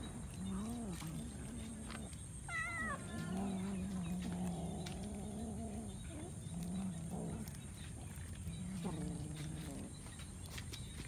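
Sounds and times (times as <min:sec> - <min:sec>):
cat growling: 0:00.4 - 0:09.9
cat meowing: 0:02.5 - 0:03.4.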